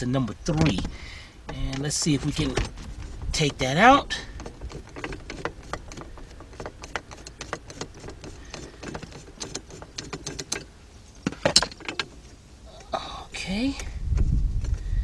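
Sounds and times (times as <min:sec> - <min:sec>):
screwdriver clicking and scraping: 0:01.5 - 0:10.7.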